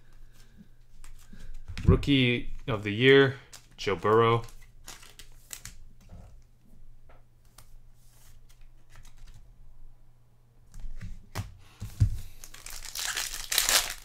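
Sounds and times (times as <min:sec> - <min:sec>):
cards clicking and rustling: 0:00.1 - 0:01.9, 0:02.5 - 0:06.5, 0:07.4 - 0:09.4, 0:10.8 - 0:14.0
wrapper crinkling and tearing: 0:03.5 - 0:05.7, 0:12.3 - 0:14.0.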